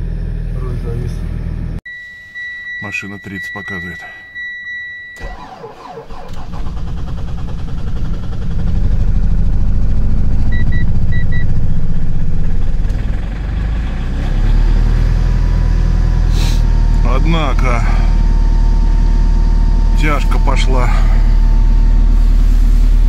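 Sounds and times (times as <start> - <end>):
dashboard chime beeps: 1.9 - 5.4
diesel engine cranking and idling: 2.8 - 23.0.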